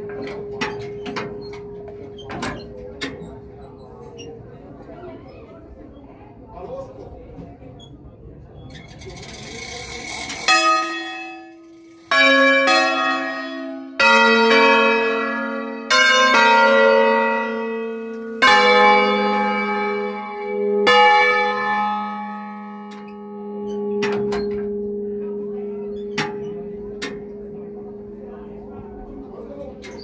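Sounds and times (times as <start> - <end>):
church bell strokes: 0.0 - 4.2, 9.2 - 30.0.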